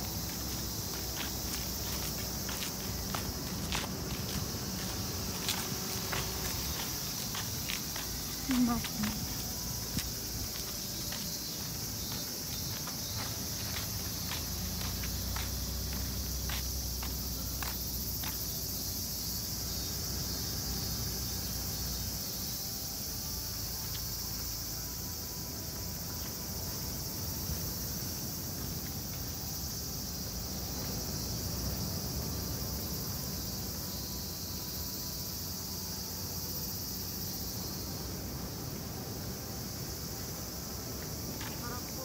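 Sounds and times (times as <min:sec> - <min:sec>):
light footsteps: 0:00.0 - 0:18.8
insects shrilling: 0:41.4 - 0:42.0.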